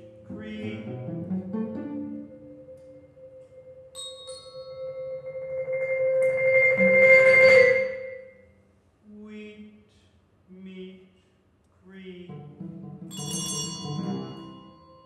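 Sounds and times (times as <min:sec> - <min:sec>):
bell-like ringing tones: 0:00.0 - 0:08.5, 0:13.1 - 0:15.0
held tone: 0:00.0 - 0:08.5
shimmering swell: 0:00.0 - 0:08.5.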